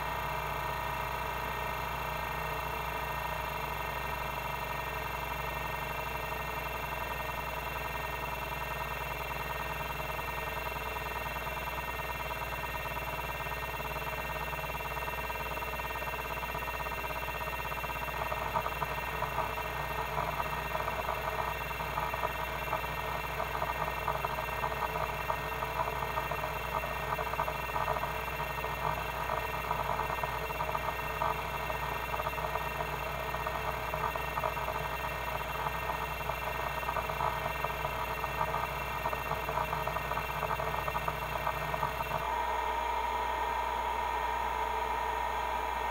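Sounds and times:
hard drive head chatter: 0.0 - 42.4
hard drive spindle whine: 0.0 - 45.9.

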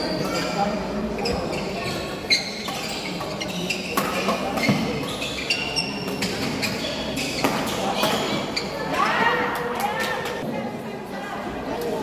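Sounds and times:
sneakers squeaking on court: 0.0 - 8.9.

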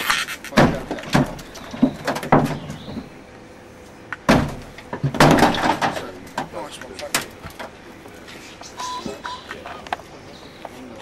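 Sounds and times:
metal knocks and clanks: 0.5 - 3.2, 4.3 - 7.7.

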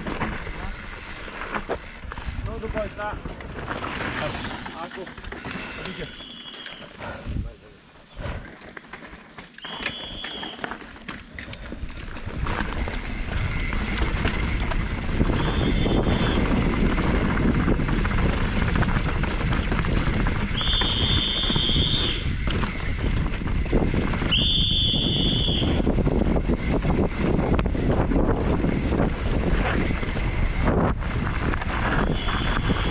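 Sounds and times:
tyres rolling over dirt: 0.0 - 32.9
short high-pitched squeals: 5.5 - 7.0, 9.6 - 10.7
wind rushing on microphone: 12.2 - 32.9.

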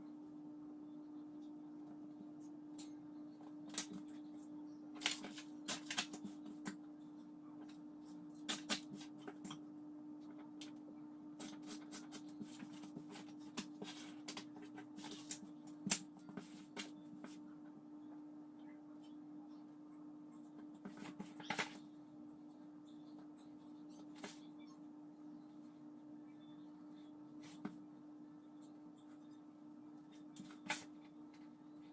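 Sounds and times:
paper rustling: 5.0 - 6.8.

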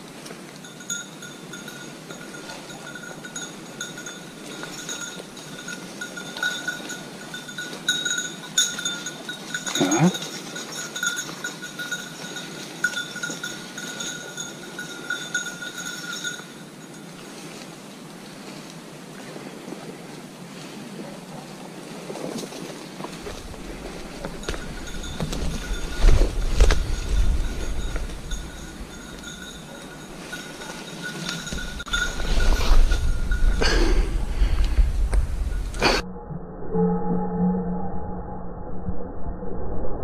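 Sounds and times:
dog's bell jingling: 0.6 - 17.5, 23.2 - 34.3.

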